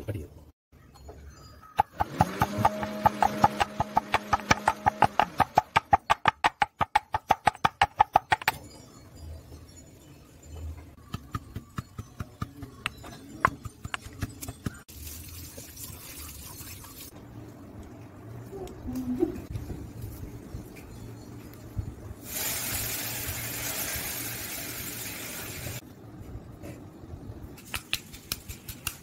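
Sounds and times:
stone pestle pounding in mortar: 1.8s - 8.6s, 11.0s - 14.8s.

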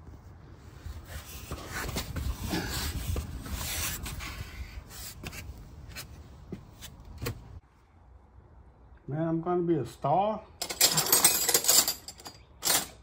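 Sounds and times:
body scraping on concrete floor: 0.1s - 7.6s.

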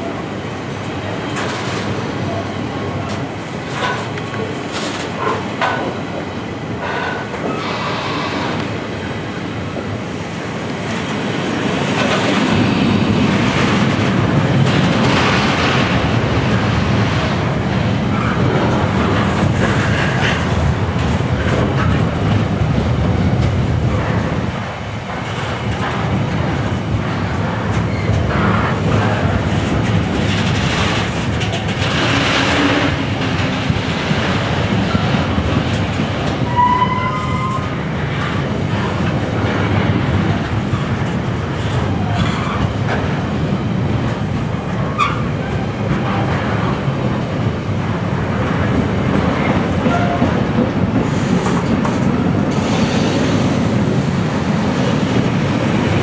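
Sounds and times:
freight train wheels on rails: 0.0s - 56.0s.

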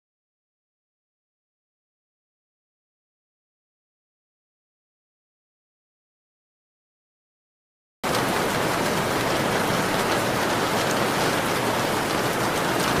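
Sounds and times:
dense rainfall: 8.0s - 13.0s.

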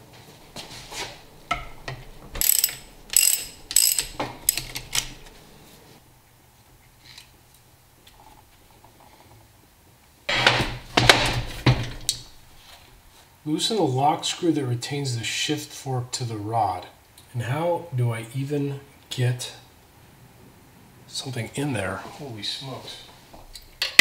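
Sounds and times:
steel tools clanking on metal: 1.5s - 5.3s.

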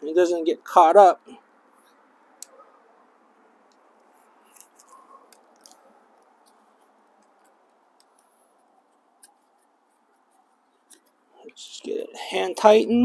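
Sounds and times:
light clicks of bicycle parts: 3.6s - 9.6s.

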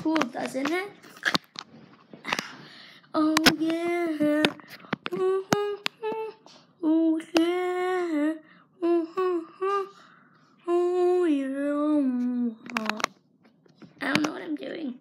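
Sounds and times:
child singing wordless notes: 3.1s - 10.0s, 10.6s - 13.0s.

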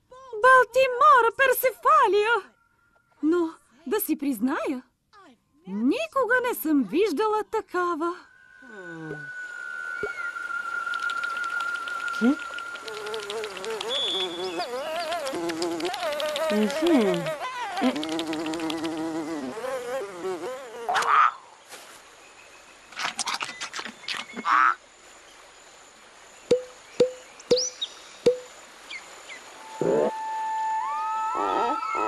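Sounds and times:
cartoon fly buzzing: 12.1s - 21.3s, 31.2s - 32.0s.

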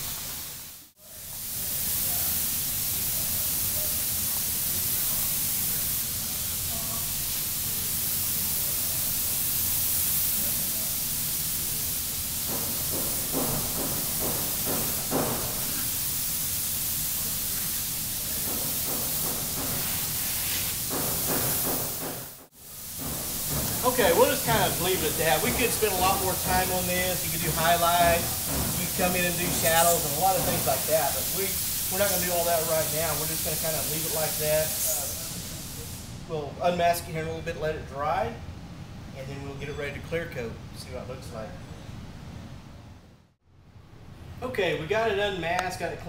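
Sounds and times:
airbrush hissing: 0.0s - 36.2s.

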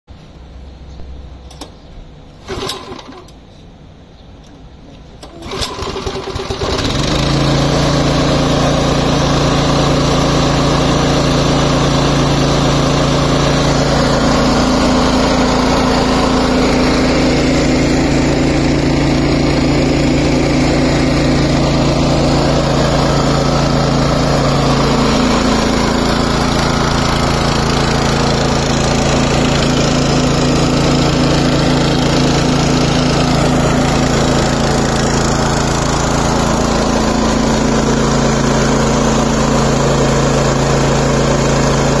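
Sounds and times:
petrol engine running: 2.4s - 3.4s, 5.2s - 42.0s.

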